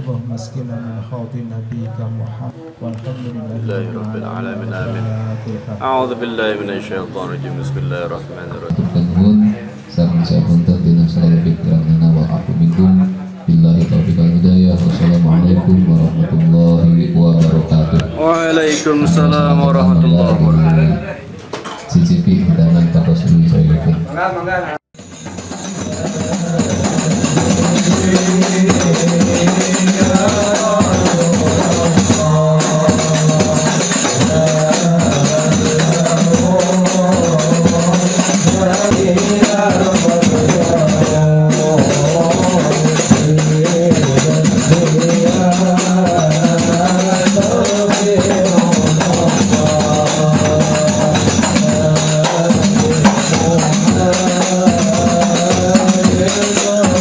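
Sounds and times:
sung melody with tambourine and drum: 24.9 - 57.0.

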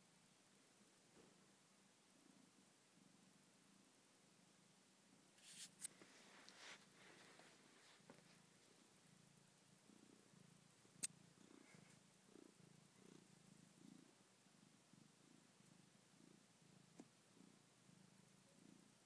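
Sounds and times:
cat purring: 0.0 - 5.3, 5.9 - 19.0.

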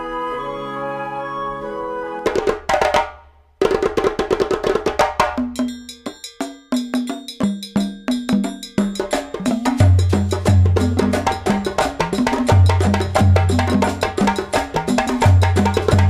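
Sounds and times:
held music notes: 0.0 - 2.5
sharp percussion strikes: 4.8 - 16.0.

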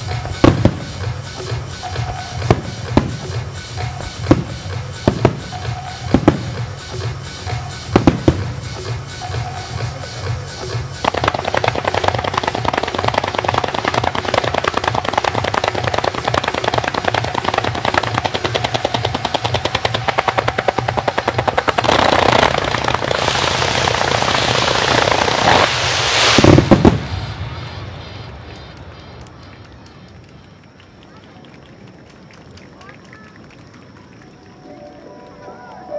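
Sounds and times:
fireworks bangs: 0.0 - 9.9, 10.6 - 31.4
fireworks crackling: 0.0 - 35.9
loud firework boom: 20.3 - 29.5.

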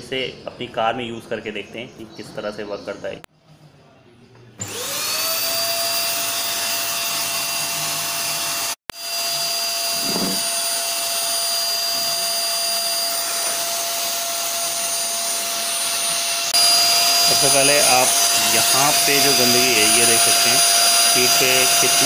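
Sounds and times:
vacuum cleaner running: 4.6 - 22.0.

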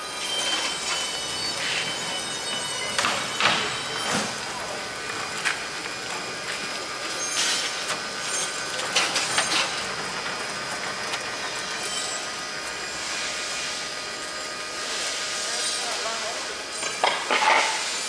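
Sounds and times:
aircraft wheels rolling on asphalt: 4.2 - 14.9.

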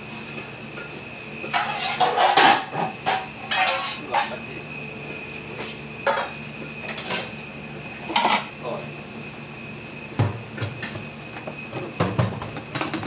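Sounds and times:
steady background hum: 0.0 - 13.0
metal utensil scraping a pan: 1.5 - 4.0.

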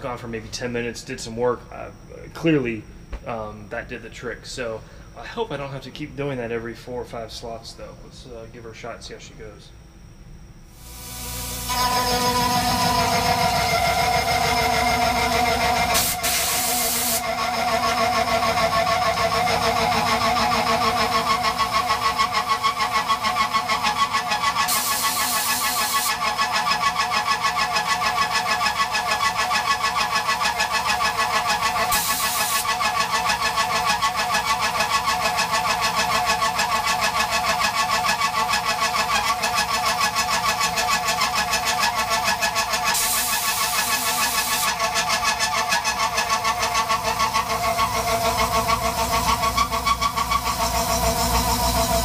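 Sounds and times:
milling cutter cutting aluminum: 10.8 - 52.0.

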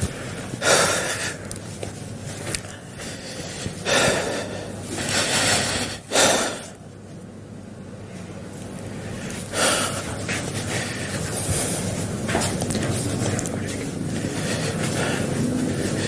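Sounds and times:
man breathing heavily: 0.0 - 6.9, 8.8 - 16.0.

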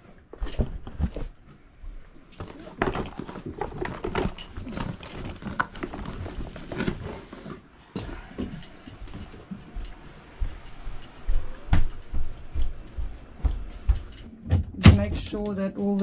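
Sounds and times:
plastic fins rustling and clicking: 2.3 - 7.7.

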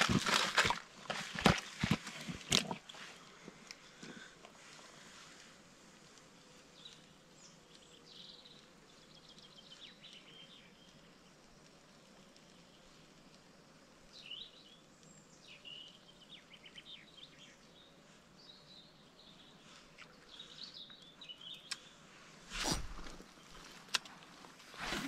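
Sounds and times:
songbirds chirping and trilling: 6.4 - 23.9.

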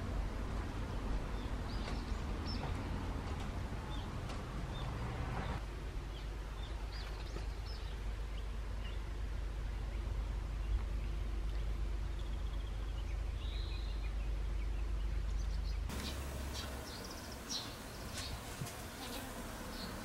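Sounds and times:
high bird chirps: 15.9 - 20.0.

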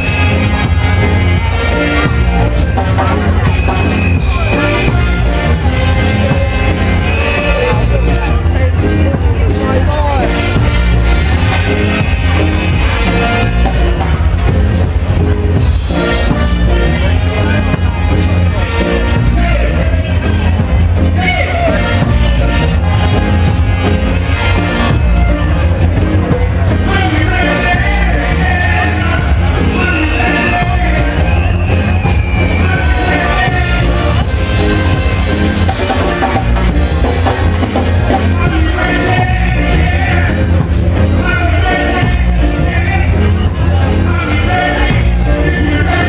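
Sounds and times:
reggae song with male vocal: 26.4 - 46.0.

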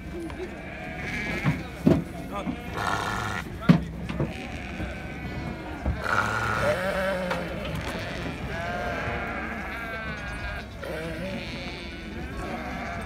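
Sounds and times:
rams bleating: 0.4 - 1.8, 2.4 - 13.0.

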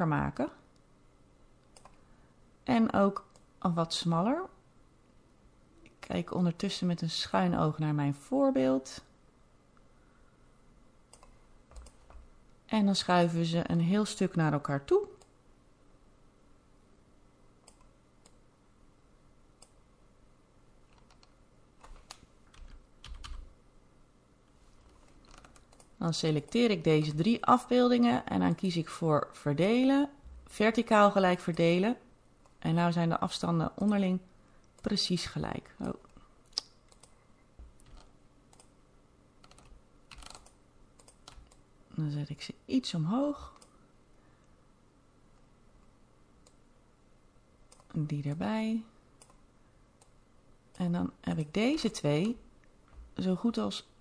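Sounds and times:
computer mouse clicks: 1.6 - 2.0, 11.1 - 12.3, 17.6 - 18.4, 19.6 - 19.8, 20.9 - 23.4, 24.8 - 26.6, 35.8 - 38.8, 39.4 - 41.6, 47.7 - 48.4, 49.2 - 49.4.

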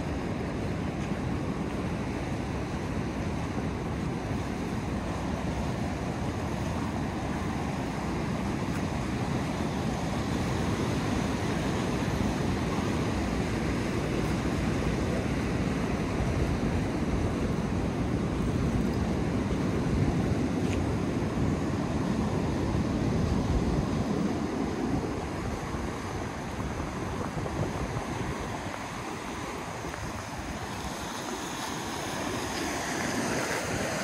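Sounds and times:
wind buffeting microphone: 0.0 - 34.0
whitewater rushing: 20.9 - 34.0.

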